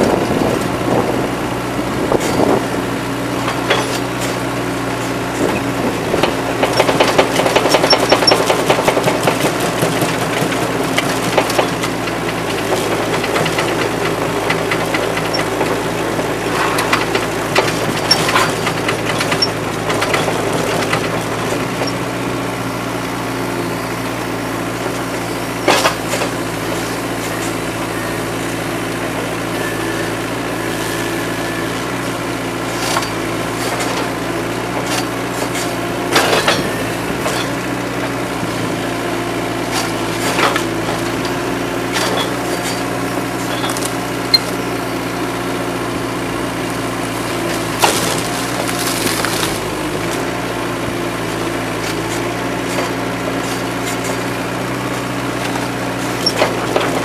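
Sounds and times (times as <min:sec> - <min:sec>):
excavator diesel engine running: 0:00.0 - 0:57.0
wood splintering: 0:46.7 - 0:50.4.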